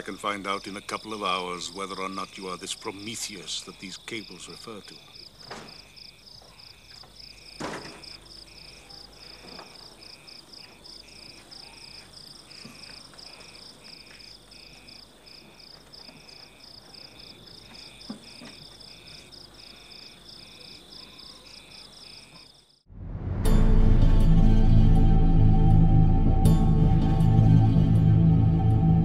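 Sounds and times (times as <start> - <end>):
crickets chirping: 0.0 - 22.9.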